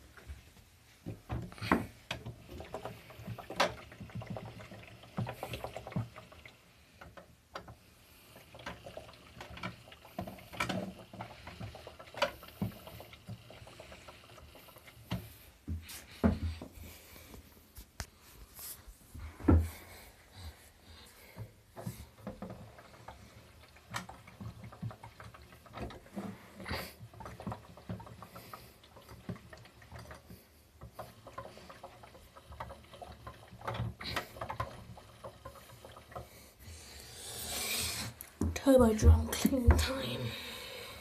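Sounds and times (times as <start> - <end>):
water sloshing in washing drum: 0.0 - 17.6, 18.6 - 41.0.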